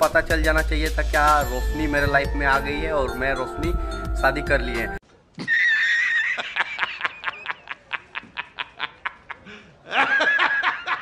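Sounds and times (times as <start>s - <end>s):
man laughing hard: 5.4s - 11.0s.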